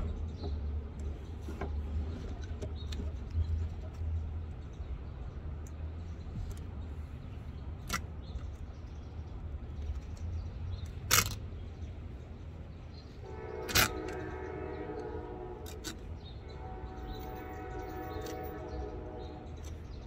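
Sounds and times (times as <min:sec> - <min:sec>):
steady multi-note horn: 0:13.2 - 0:19.6.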